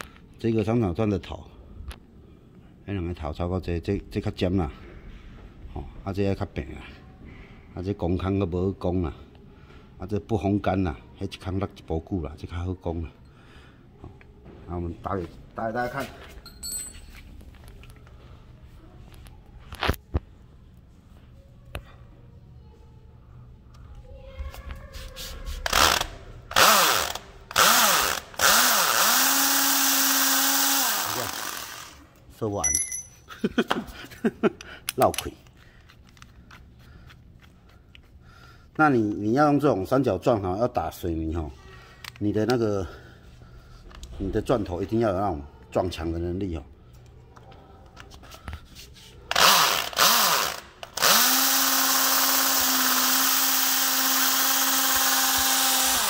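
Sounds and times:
electric drill boring into concrete: 25.7s - 32.0s, 49.3s - 56.0s.

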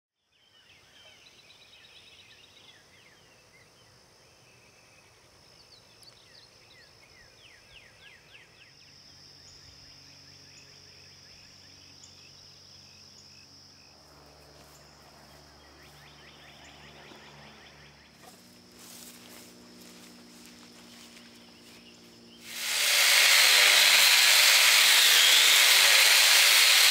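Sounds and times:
high insect drone: 6.5s - 26.9s.

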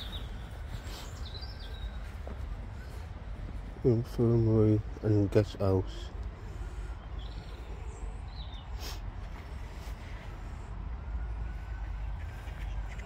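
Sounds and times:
steady low rumble: 0.0s - 13.0s
faint bird calls: 11.5s - 13.0s.

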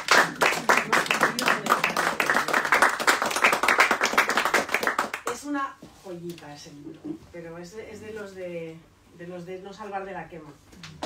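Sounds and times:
audience applauding: 0.0s - 5.3s.

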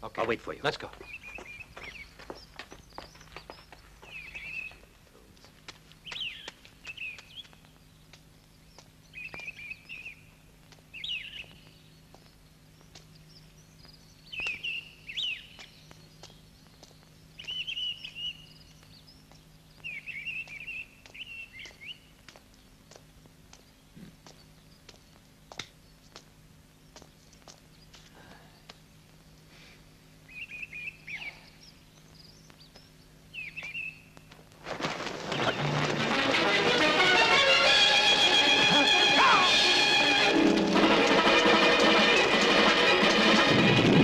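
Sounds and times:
low hum: 34.1s - 44.0s.

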